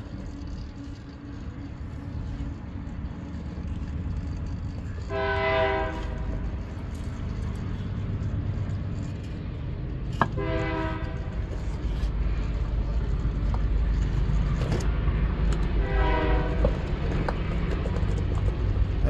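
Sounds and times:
toy car motor rumble: 0.0 - 10.2.

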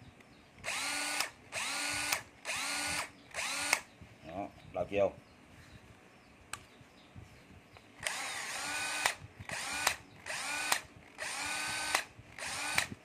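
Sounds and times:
impact wrench motor spinning: 0.6 - 3.8, 8.0 - 13.0.

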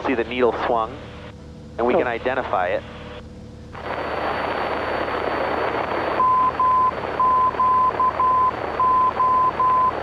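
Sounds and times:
radio static hiss: 1.8 - 10.0
morse code beep tone: 6.2 - 10.0.

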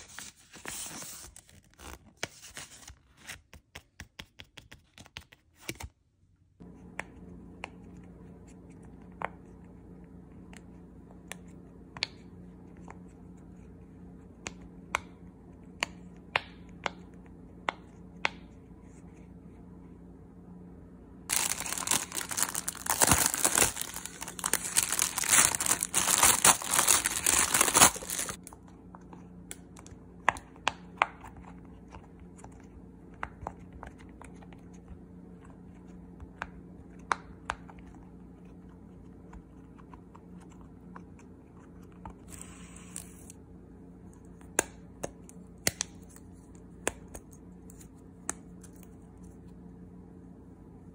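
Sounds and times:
crinkling and tearing: 21.3 - 28.5.

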